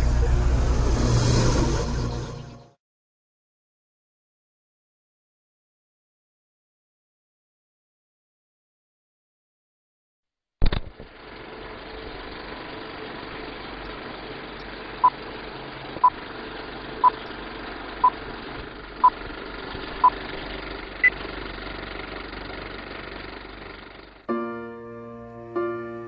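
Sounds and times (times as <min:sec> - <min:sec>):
film projector whirring and rattling: 0:10.6 - 0:24.2
soft piano music: 0:24.3 - 0:26.0.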